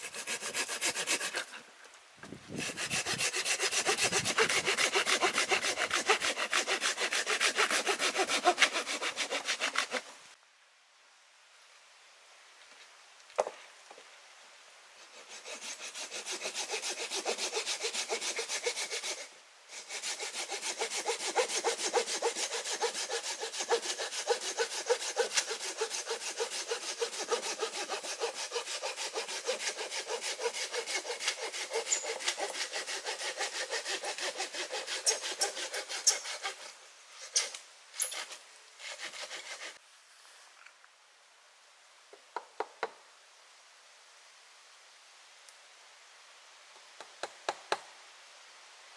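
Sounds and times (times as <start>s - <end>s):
hand saw cutting wood: 0.0s - 1.6s, 2.5s - 10.2s, 15.0s - 39.8s.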